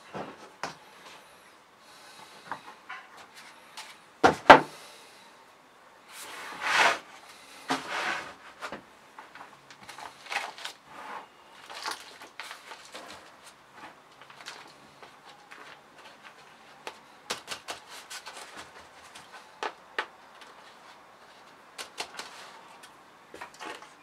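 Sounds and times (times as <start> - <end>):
hands scraping compost: 6.1 - 8.5.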